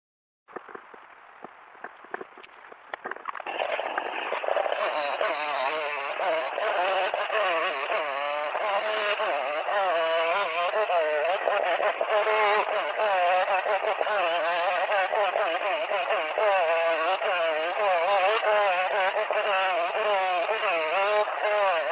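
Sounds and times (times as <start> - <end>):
faint clicks: 0.5 - 5.7
chainsaw cutting log: 2.1 - 21.9.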